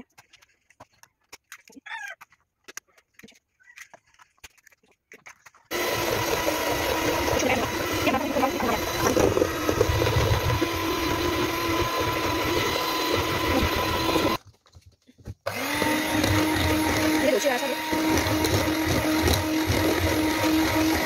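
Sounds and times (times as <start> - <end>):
electric hand mixer whisking: 5.7 - 14.4, 15.5 - 21.0.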